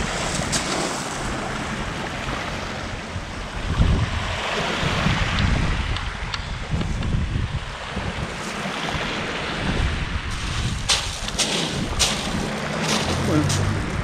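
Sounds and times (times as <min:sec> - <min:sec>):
waves on pebble beach: 0:00.0 - 0:06.8, 0:07.5 - 0:14.0
wind buffeting microphone: 0:00.0 - 0:14.0
wind hiss: 0:03.2 - 0:13.2.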